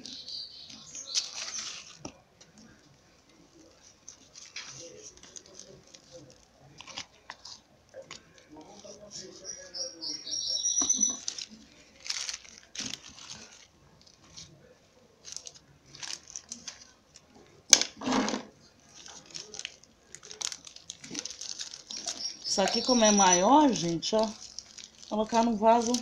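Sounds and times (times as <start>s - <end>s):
hands rustling soil and pots: 0.0s - 17.6s, 18.7s - 26.0s.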